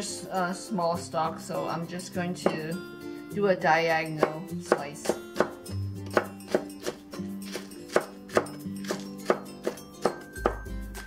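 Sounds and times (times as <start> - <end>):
background music: 0.0 - 11.0
knife chopping on wooden board: 4.2 - 10.7.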